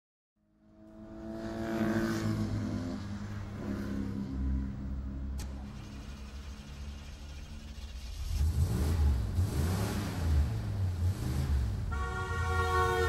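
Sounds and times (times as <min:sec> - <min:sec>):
vehicle engine running: 0:03.4 - 0:12.0.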